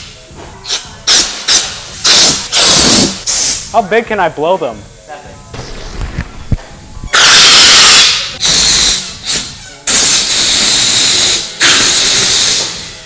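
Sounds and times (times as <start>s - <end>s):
air hose hissing into balloon: 0.6s - 3.8s, 7.1s - 13.0s.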